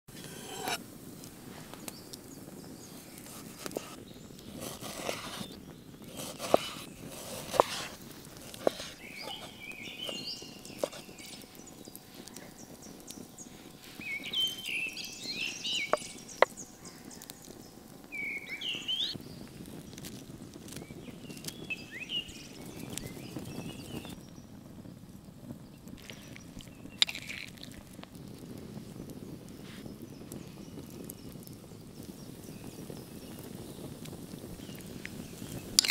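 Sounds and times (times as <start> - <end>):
low outdoor background: 0.1 - 35.9
knife chopping on wooden board: 0.2 - 0.8, 4.6 - 5.4, 6.1 - 10.2
birds chirping: 1.7 - 27.7, 28.8 - 35.9
hands working meat in bowl: 4.6 - 11.5.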